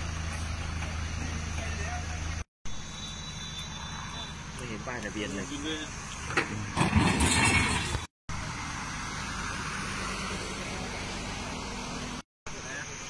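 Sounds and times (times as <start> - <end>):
low traffic hum: 0.0 - 13.0
vehicle passing loudly: 6.7 - 12.2.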